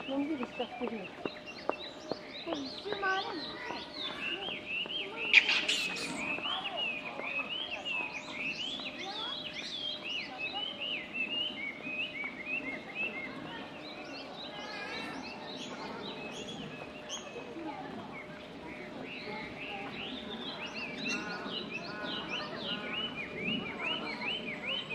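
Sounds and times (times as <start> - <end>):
high chirp-like animal calls: 5.2 - 6.8.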